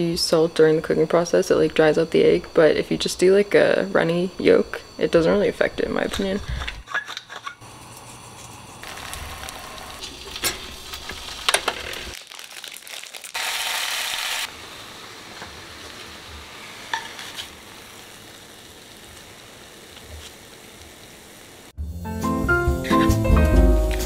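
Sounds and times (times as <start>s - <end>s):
egg and meat sizzling in pan: 8.8s - 21.7s.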